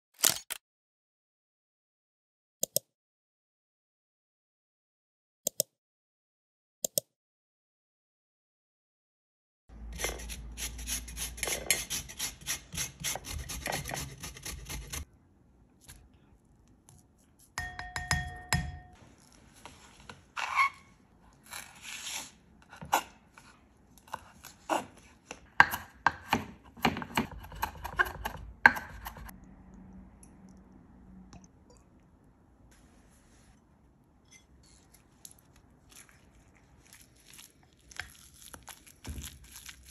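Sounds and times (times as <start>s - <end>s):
rind rasped on metal grater: 10.0s - 15.0s
knife chopping on wooden board: 24.1s - 29.3s.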